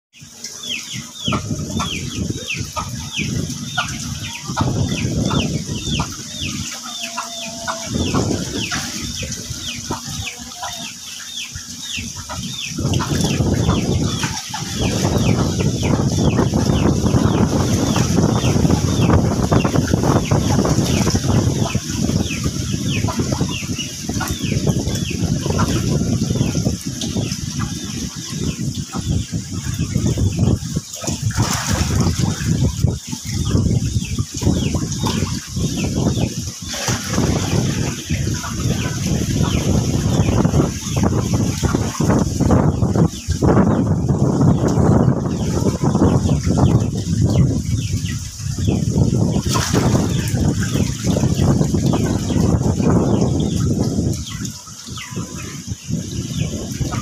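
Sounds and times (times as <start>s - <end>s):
low rumbling noise: 0.2s - 57.0s
fish splashing at water surface: 17.5s - 43.4s, 49.2s - 57.0s.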